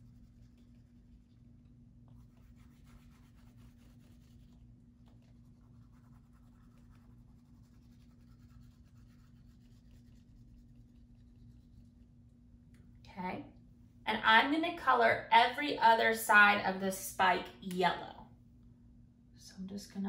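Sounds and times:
low steady hum: 0.0s - 20.0s
crayon scratching on paper: 5.5s - 12.0s.

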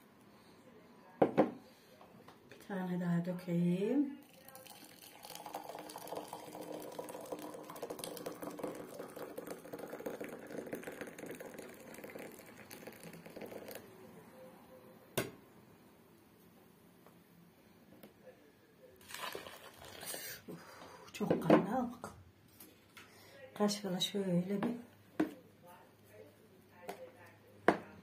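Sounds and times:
water boiling in a kettle: 4.2s - 14.0s, 19.0s - 20.4s.

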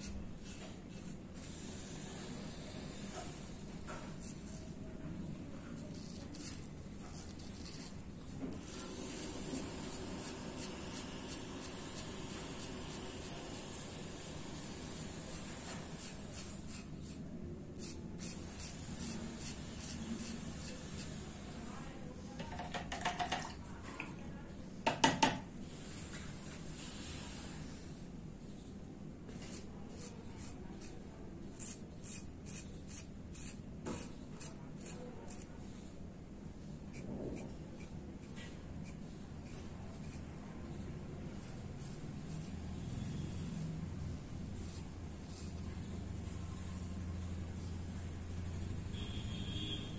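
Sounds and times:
razor scraping through stubble: 0.0s - 2.0s, 2.9s - 4.8s, 5.7s - 21.2s, 29.3s - 35.8s, 36.6s - 43.6s, 44.4s - 47.4s.

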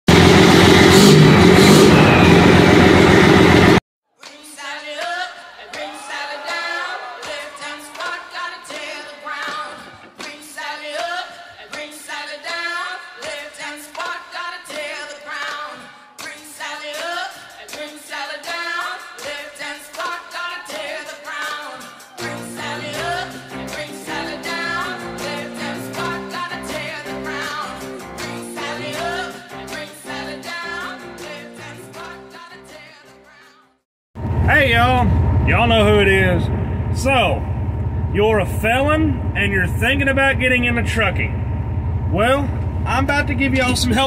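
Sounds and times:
truck exhaust rumbling: 0.1s - 3.8s, 34.2s - 44.0s
pop song with singing: 4.2s - 33.8s.

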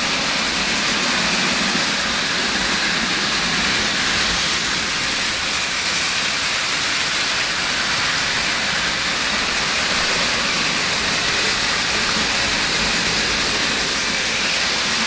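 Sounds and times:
model trains whirring on track: 0.0s - 15.0s.

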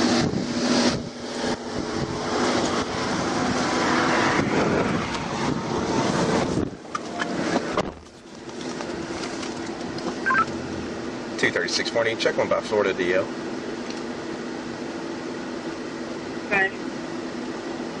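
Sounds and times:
highway traffic passing: 0.0s - 12.2s.

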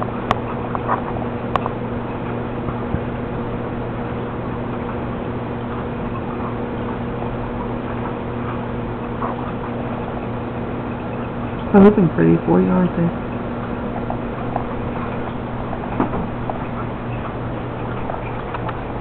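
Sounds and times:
aquarium pump humming: 0.0s - 19.0s.

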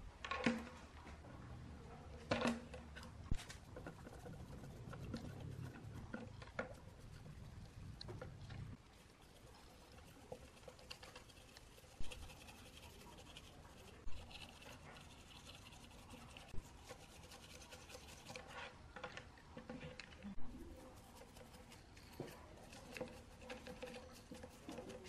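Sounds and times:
paintbrush scrubbing circuit board: 3.3s - 8.0s, 8.7s - 18.8s, 20.5s - 25.0s.

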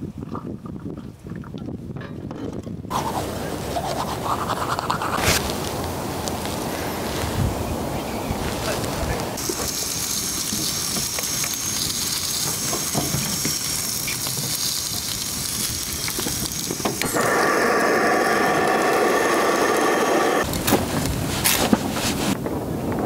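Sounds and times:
food sizzling in a grill pan: 9.4s - 20.5s.

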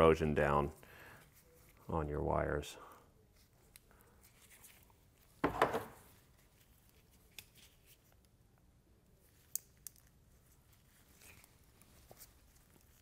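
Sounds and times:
gloved hands handling: 3.2s - 8.4s, 9.2s - 13.0s.

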